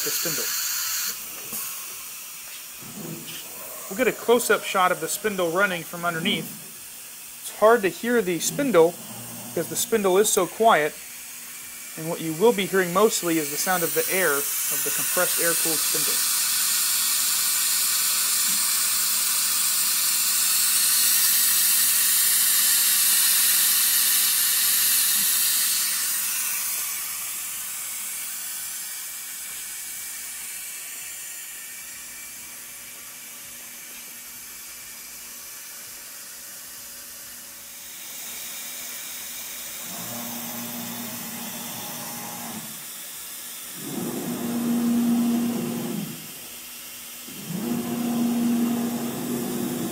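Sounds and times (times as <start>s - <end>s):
loud hiss of cooling air: 0.0s - 49.9s
low steady motor tone: 47.4s - 49.9s.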